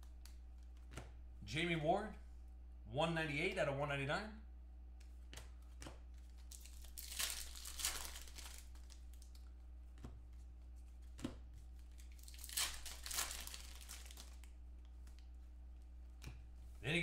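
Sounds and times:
low steady hum: 0:00.0 - 0:17.0
foil wrapper tearing and crinkling: 0:06.5 - 0:09.4, 0:11.9 - 0:14.5.

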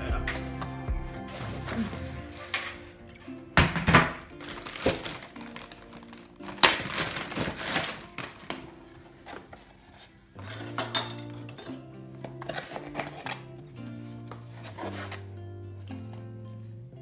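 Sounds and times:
background music: 0:00.0 - 0:17.0
plastic bag rustling: 0:01.2 - 0:10.7, 0:12.3 - 0:15.3.

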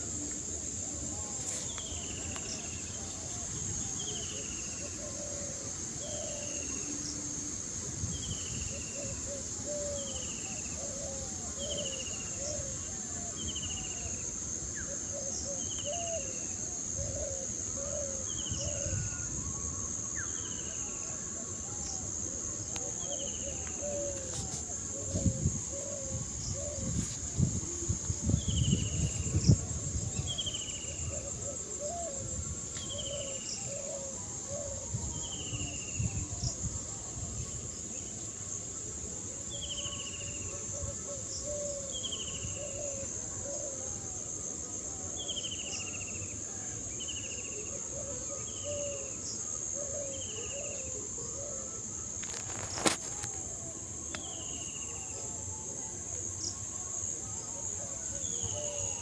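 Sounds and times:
high-pitched insect trill: 0:00.0 - 0:59.0
wind rumble on microphone: 0:25.0 - 0:30.5.

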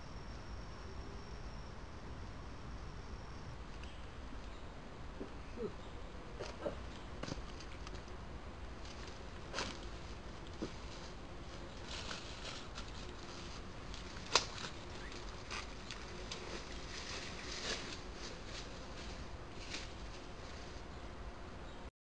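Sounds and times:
faint steady hiss: 0:00.0 - 0:21.9
footsteps in dry leaves: 0:08.8 - 0:20.9.

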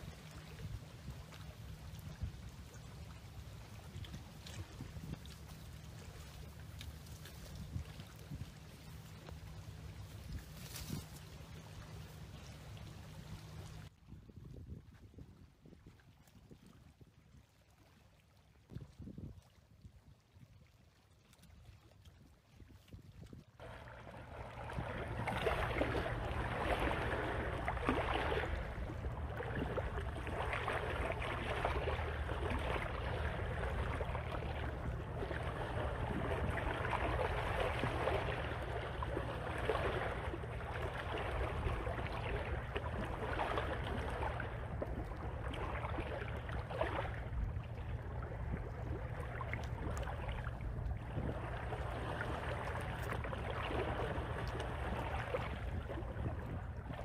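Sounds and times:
wind and water noise: 0:00.0 - 0:57.0
steady low rumble: 0:23.6 - 0:57.0.

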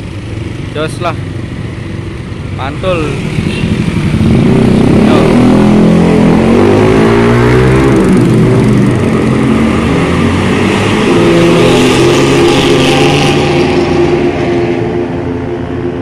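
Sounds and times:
bus diesel engine revving: 0:02.9 - 0:15.4.

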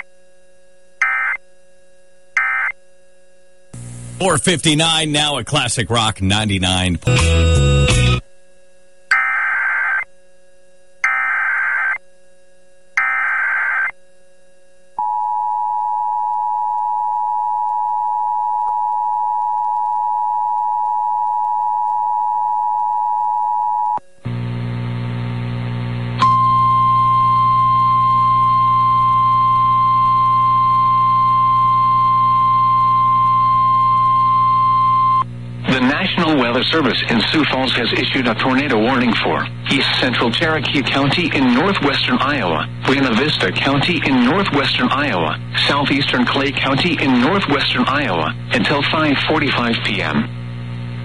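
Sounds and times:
humming static: 0:00.0 - 0:51.0
single-pitch warning alarm tone: 0:01.0 - 0:01.6, 0:02.3 - 0:03.2, 0:11.0 - 0:12.0, 0:13.0 - 0:14.0, 0:26.2 - 0:35.2
screeching data bursts: 0:09.1 - 0:10.0, 0:11.0 - 0:12.0, 0:13.0 - 0:13.9.

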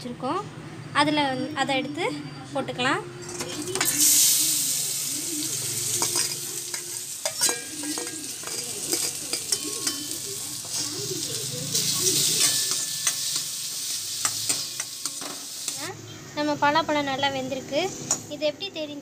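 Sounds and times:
food sizzling in a pan: 0:03.5 - 0:16.7
metal ladle scraping a pan: 0:05.5 - 0:15.7.

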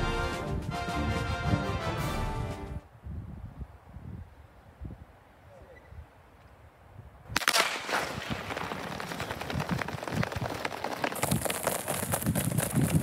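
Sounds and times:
starting pistol crack: 0:07.3 - 0:08.8
sprinters' feet on track: 0:08.1 - 0:13.0.

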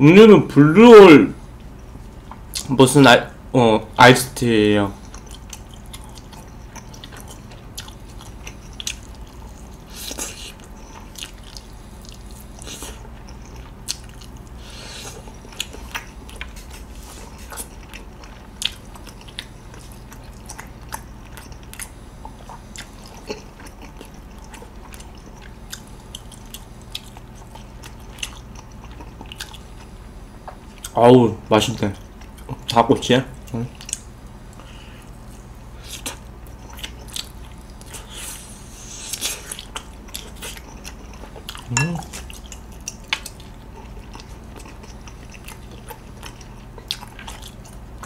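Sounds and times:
low steady hum: 0:00.0 - 0:48.0
chewing and mouth clicks: 0:01.6 - 0:02.8, 0:04.9 - 0:32.8, 0:33.4 - 0:38.4, 0:39.0 - 0:48.0.

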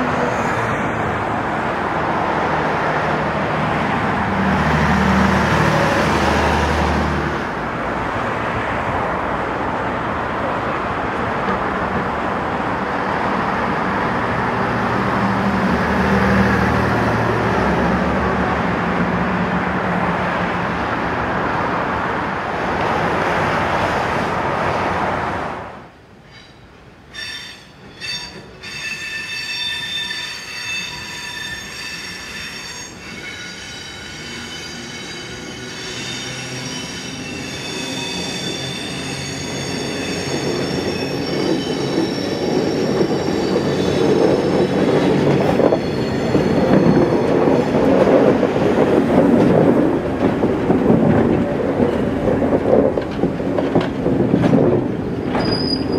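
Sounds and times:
road traffic: 0:00.0 - 0:55.9
train carriages rumbling past: 0:00.0 - 0:55.9
train wheel squeal: 0:26.3 - 0:48.3, 0:55.1 - 0:55.9.

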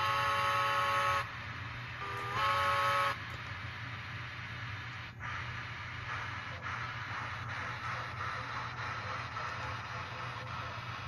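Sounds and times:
model steam locomotive whistle: 0:00.0 - 0:01.3, 0:02.0 - 0:03.2.

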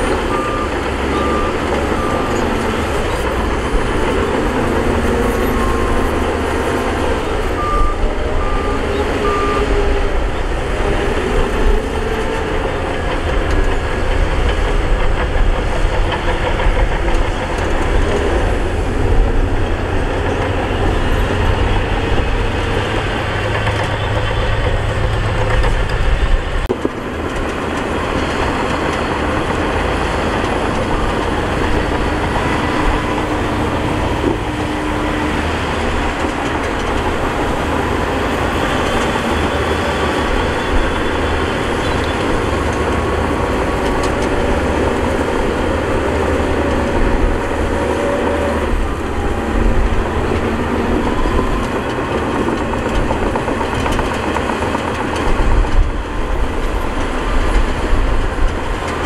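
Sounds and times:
deep engine rumble: 0:00.0 - 0:59.0
diesel machinery rattling: 0:00.0 - 0:59.0.

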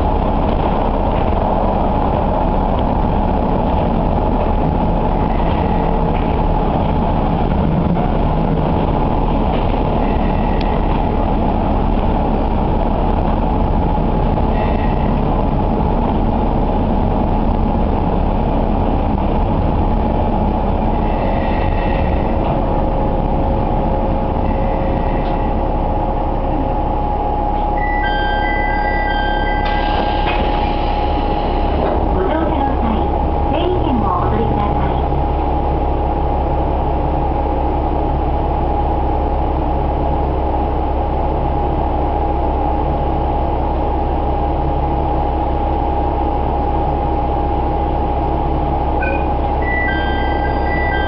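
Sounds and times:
diesel railcar engine: 0:00.0 - 0:51.0
lower whine: 0:00.0 - 0:51.0
steady whine: 0:00.0 - 0:51.0.

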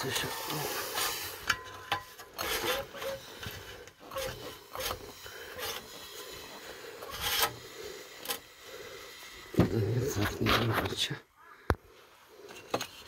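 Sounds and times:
metal scraping and rubbing: 0:00.0 - 0:10.9.

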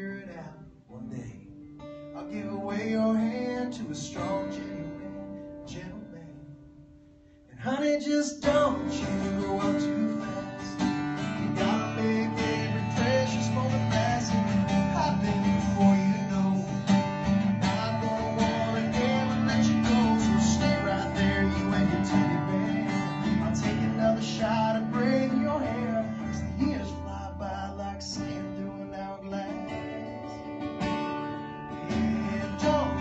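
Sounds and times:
acoustic guitar country song: 0:00.0 - 0:33.0.

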